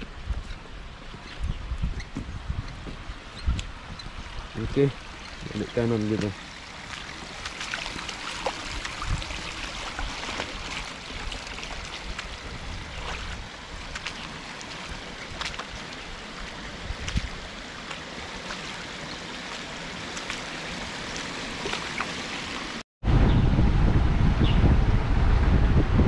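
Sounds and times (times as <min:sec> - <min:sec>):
water rushing over a weir: 0:03.0 - 0:22.8
small water splashes: 0:03.9 - 0:22.8.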